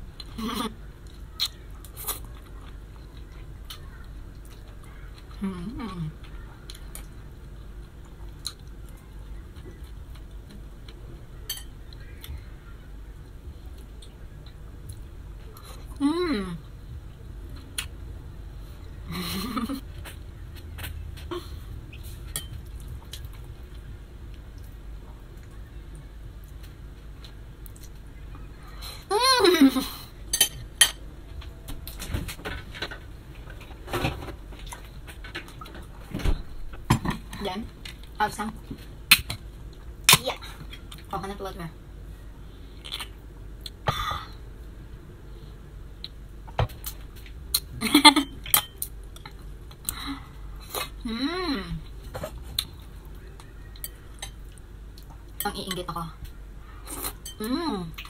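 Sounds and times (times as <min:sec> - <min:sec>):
soft chewing: 0:00.2 - 0:05.5, 0:06.1 - 0:16.0, 0:51.8 - 0:58.0
person humming: 0:16.0 - 0:16.6, 0:51.0 - 0:51.9.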